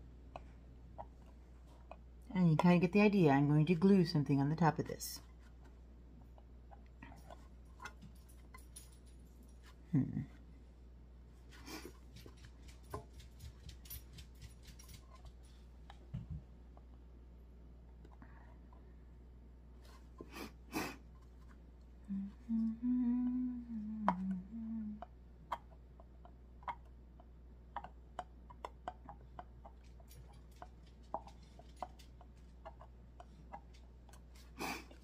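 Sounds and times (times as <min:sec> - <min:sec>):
woman humming: 0:09.9 - 0:10.4, 0:22.0 - 0:25.1.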